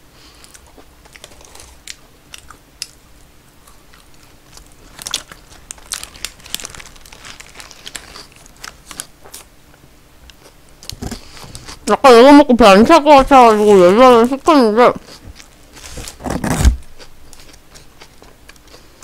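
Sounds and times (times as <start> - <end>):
paper wrapper crinkling: 1.0 - 2.5, 4.2 - 9.5.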